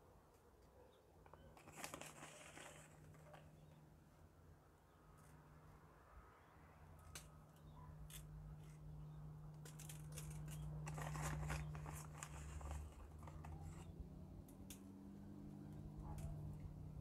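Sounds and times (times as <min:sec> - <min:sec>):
plastic bag crinkling: 0:01.4 - 0:03.6, 0:09.7 - 0:13.9.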